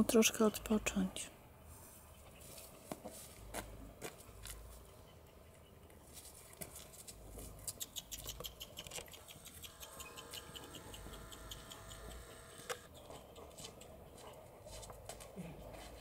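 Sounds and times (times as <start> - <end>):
person's footsteps on asphalt: 2.4 - 4.8, 6.1 - 7.6
dog claws clicking on asphalt: 6.1 - 15.3.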